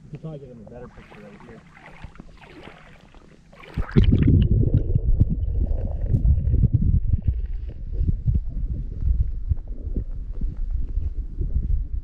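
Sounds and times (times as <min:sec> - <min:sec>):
muffled underwater rumble: 0:00.4 - 0:12.0
water gurgling: 0:00.5 - 0:10.2
small knocks underwater: 0:00.9 - 0:11.1.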